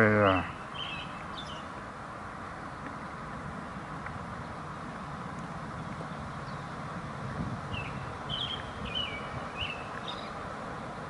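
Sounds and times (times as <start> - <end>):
steady low background noise: 0.0 - 11.0.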